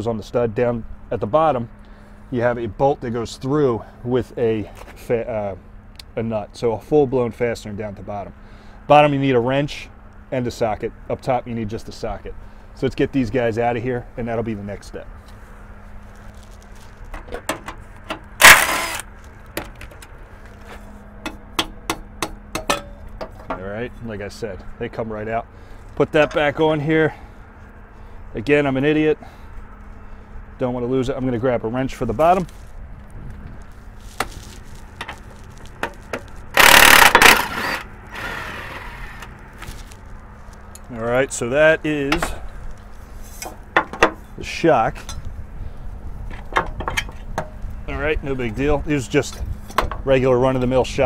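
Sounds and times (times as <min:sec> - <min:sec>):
impact wrench hammering: 0:17.4 - 0:19.0, 0:21.2 - 0:23.4, 0:36.6 - 0:37.9
impact wrench burst: 0:18.4 - 0:19.1, 0:36.5 - 0:39.3.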